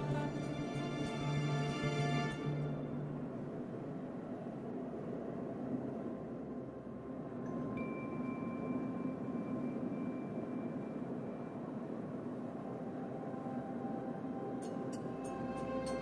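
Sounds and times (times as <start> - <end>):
airplane cabin engine rumble: 0.0 - 16.0.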